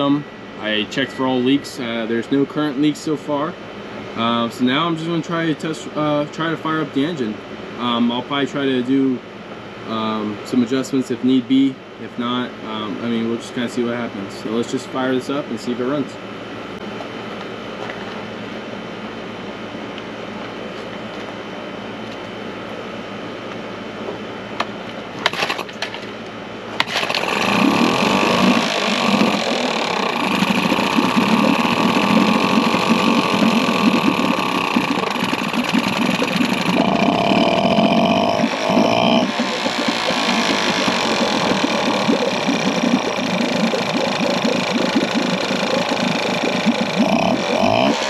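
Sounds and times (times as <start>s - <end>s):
outboard motor pull-started: 25.2s - 25.9s, 26.8s - 48.0s
outboard motor running: 26.8s - 48.0s.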